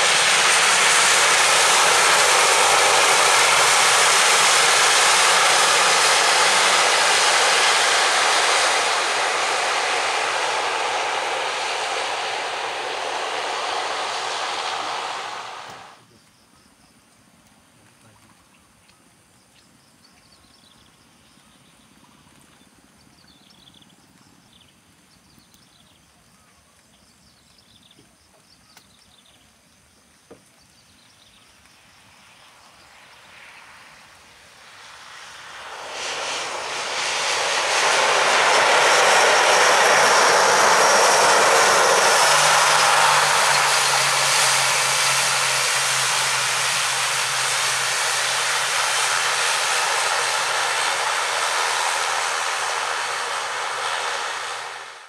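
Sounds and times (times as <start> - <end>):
steady low hum: 0.0 - 16.0, 34.6 - 55.0
turboprop airliner rolling past: 0.0 - 16.0, 31.0 - 55.0.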